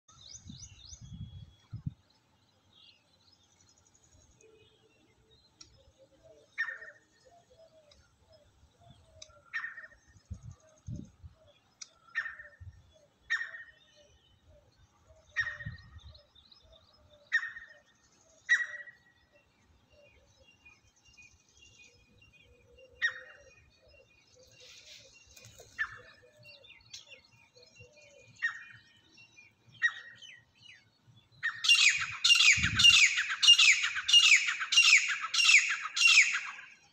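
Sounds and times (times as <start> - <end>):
francolin calling: 31.4 - 36.8.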